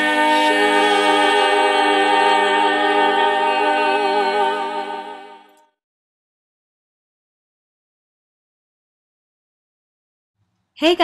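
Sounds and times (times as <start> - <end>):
choir singing a held chord: 0.0 - 5.6.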